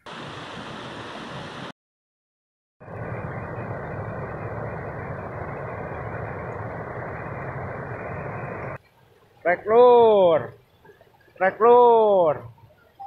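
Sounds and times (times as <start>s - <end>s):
water rushing over weir: 0.0s - 1.7s, 2.8s - 8.8s.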